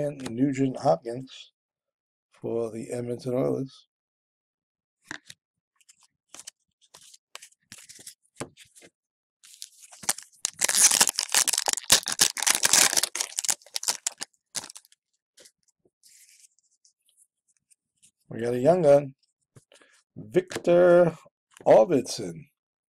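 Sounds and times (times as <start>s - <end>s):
cards rustling: 9.5s - 15.0s
foil wrapper tearing and crinkling: 9.5s - 15.0s.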